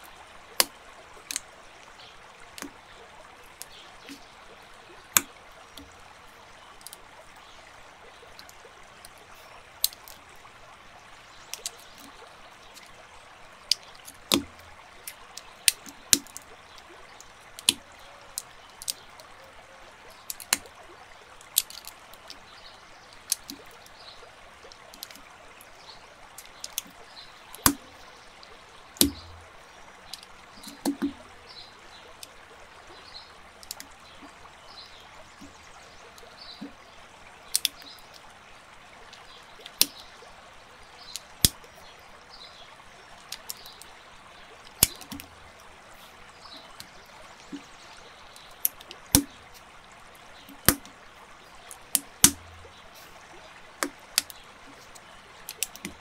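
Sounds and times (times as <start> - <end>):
plastic bricks clicking together: 20.3 - 20.6, 50.6 - 50.9
steady hiss: 52.2 - 53.6.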